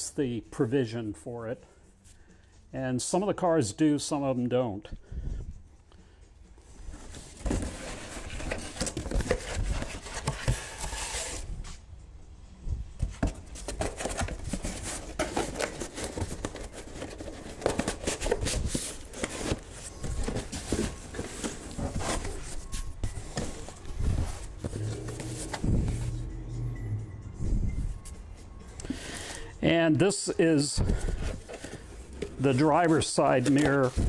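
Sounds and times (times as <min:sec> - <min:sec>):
cardboard scraping and rustling: 0:06.9 - 0:11.5, 0:13.0 - 0:26.3, 0:30.8 - 0:34.0.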